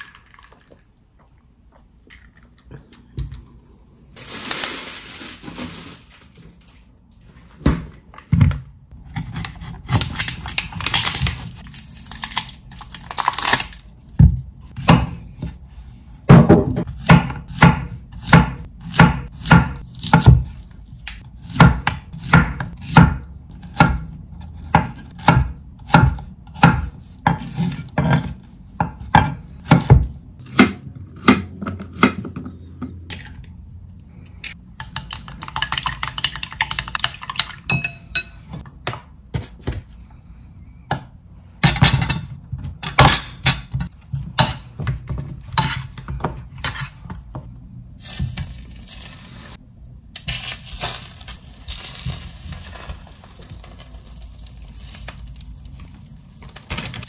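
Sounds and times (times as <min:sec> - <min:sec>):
knife chopping on wooden board: 0:16.3 - 0:20.5, 0:21.5 - 0:32.5
metal spoon clinking in bowl: 0:37.3 - 0:38.4.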